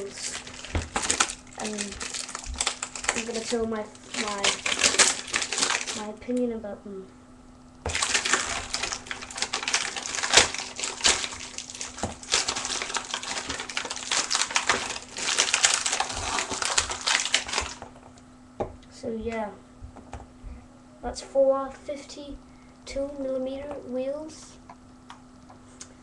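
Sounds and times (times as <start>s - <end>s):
plastic packaging crinkling: 0.0s - 6.2s, 7.9s - 18.1s.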